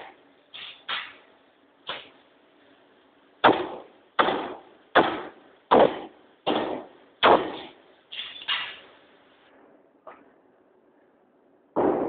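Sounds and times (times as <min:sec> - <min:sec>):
power hammer striking hot metal: 0:03.4 - 0:08.8.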